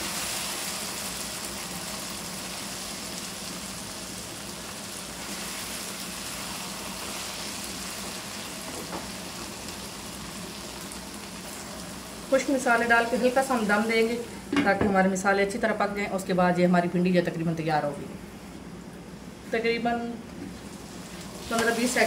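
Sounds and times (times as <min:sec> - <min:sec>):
vegetables sizzling in a wok: 0:00.0 - 0:14.8, 0:20.4 - 0:22.0.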